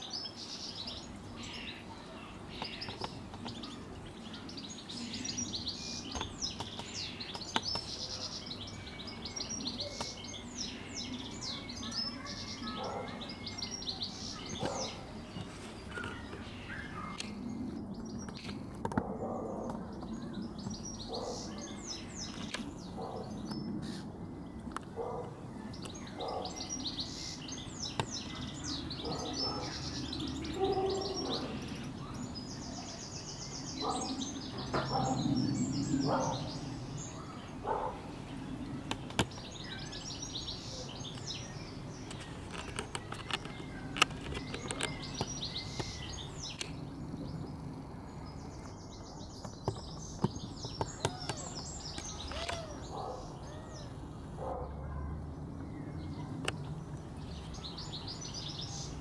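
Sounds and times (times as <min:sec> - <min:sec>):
songbirds chirping and singing: 0:00.0 - 0:59.0
low bird calls: 0:48.2 - 0:56.6.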